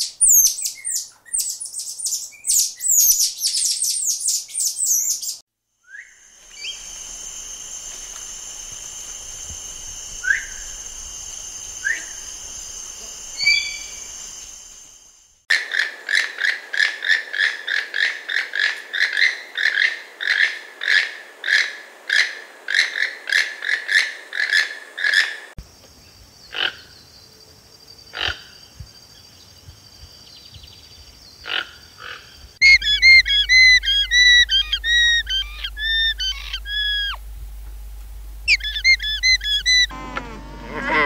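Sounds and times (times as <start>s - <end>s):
high quavering whistling calls: 0.0s - 7.0s, 9.8s - 14.5s, 31.4s - 37.3s, 38.5s - 41.0s
toucan croaking calls: 13.4s - 14.0s, 31.4s - 41.0s.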